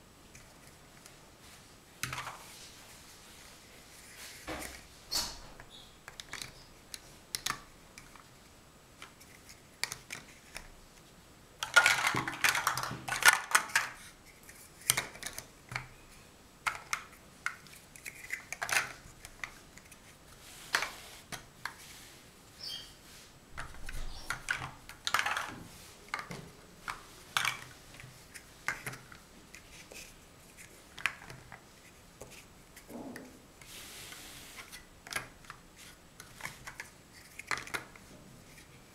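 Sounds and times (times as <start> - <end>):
plastic bricks clacking: 11.6 - 14.0, 23.6 - 27.7.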